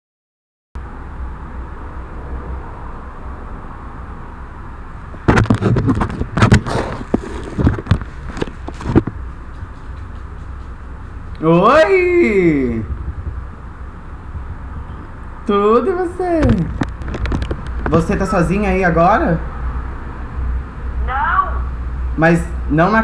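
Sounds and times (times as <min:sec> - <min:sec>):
steady low hum: 0:00.8 - 0:23.0
loud irregular knocks and bumps: 0:05.2 - 0:09.3.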